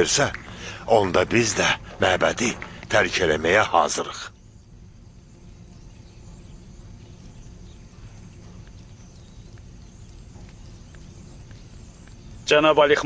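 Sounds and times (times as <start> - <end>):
light hiss: 0.0 - 13.0
soft ticks: 7.3 - 12.4.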